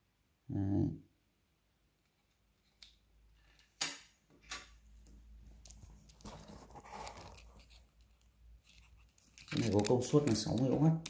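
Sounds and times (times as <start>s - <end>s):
soft rustling: 5.1s - 10.9s.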